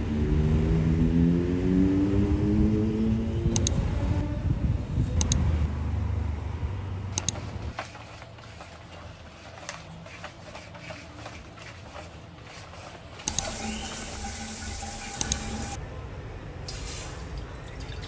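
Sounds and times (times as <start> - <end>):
low city rumble: 0.0 - 18.0
vacuum cleaner running: 8.1 - 15.8.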